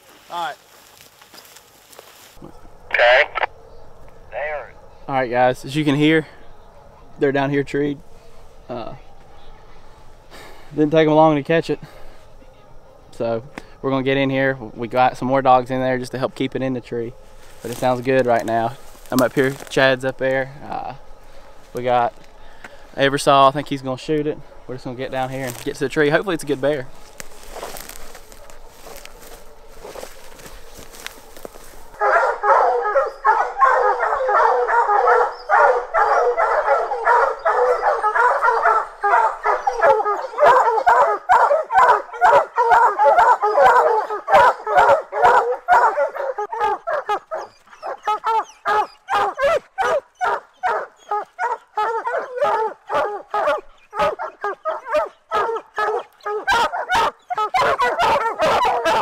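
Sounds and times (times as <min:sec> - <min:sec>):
dogs barking: 0:24.4 - 0:59.0.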